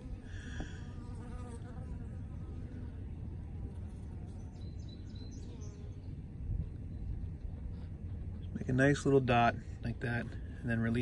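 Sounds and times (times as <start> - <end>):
steady low rumble: 2.2 - 11.0
faint high bird chirps: 4.2 - 7.5.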